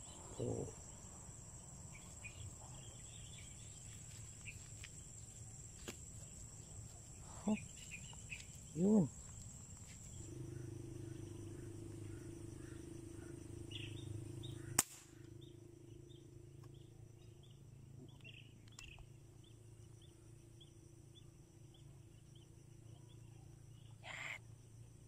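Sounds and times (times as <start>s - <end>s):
low steady hum: 0.0s - 23.9s
air rifle shot: 14.8s - 15.2s.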